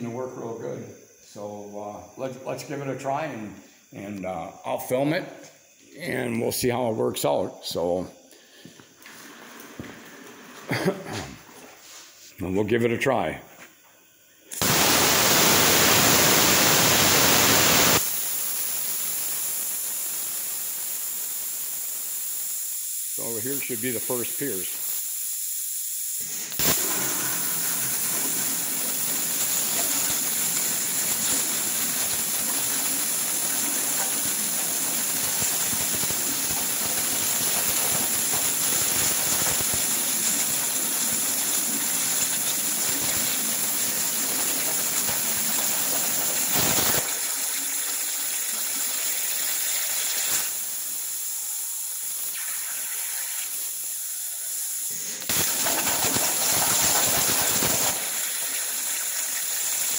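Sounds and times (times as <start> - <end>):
plasma cutter hissing: 14.5 - 48.1, 49.0 - 59.9.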